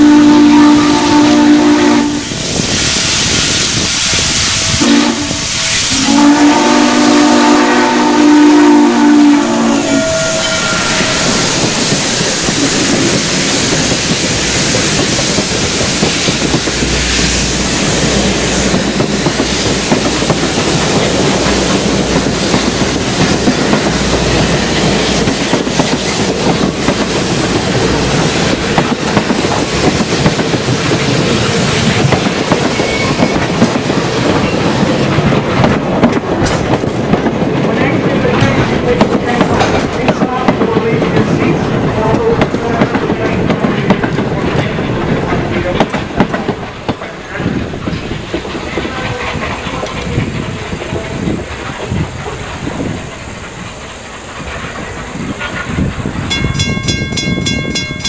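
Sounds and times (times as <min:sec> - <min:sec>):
steam whistle blasts: 0:00.0 - 0:03.2, 0:04.4 - 0:11.9
train wheels clickety-clack: 0:08.8 - 0:58.0.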